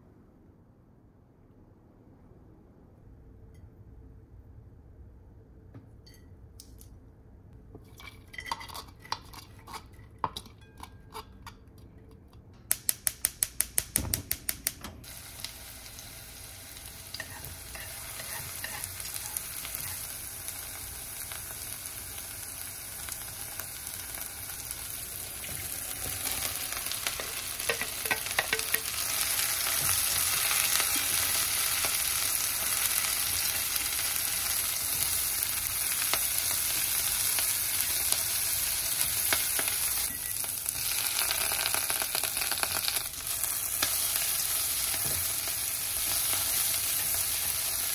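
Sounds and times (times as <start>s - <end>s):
vegetables sizzling in oil: 15.0s - 47.9s
chopsticks clattering against pot: 27.2s - 29.0s.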